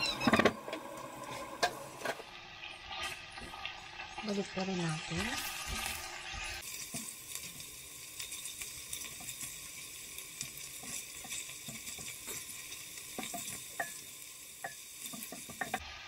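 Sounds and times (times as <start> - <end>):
food sizzling in oil: 0.0 - 16.0
spatula scraping and tapping pot: 5.7 - 15.8.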